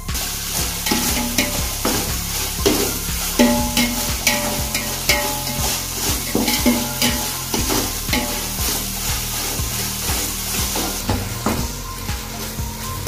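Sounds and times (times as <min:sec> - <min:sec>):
metal ladle scraping a pot: 0:00.0 - 0:13.0
oil sizzling: 0:00.0 - 0:13.0.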